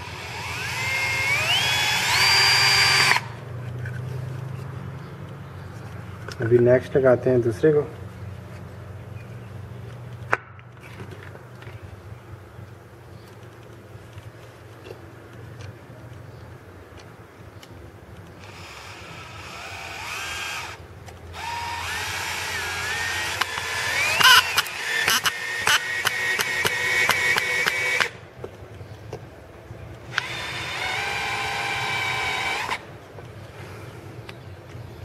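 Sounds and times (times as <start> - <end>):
drill motor whining: 0.0 - 3.3, 18.4 - 20.8, 21.4 - 28.2, 30.1 - 32.8.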